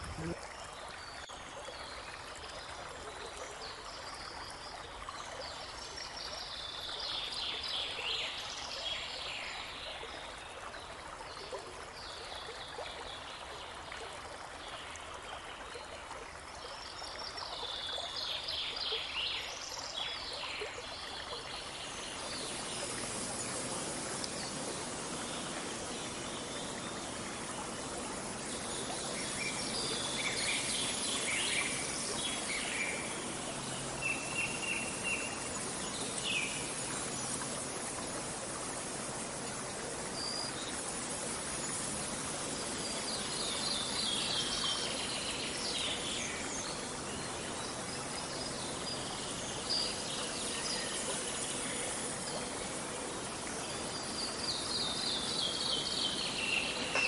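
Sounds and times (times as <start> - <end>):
babbling brook: 0.0 - 57.0
songbirds calling and trilling: 16.6 - 57.0.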